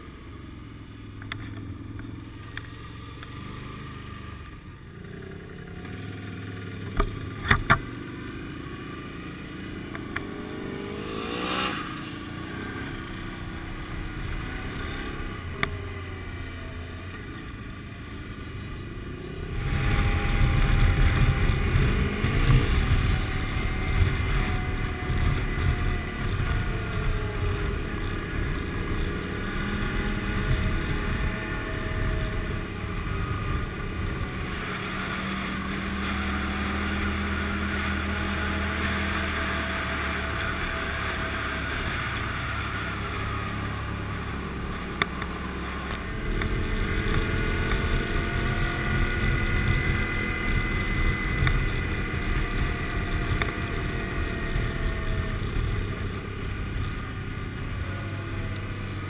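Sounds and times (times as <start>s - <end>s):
motorcycle engine running: 0.0s - 59.0s
wind rushing over microphone: 19.2s - 38.9s, 45.4s - 59.0s.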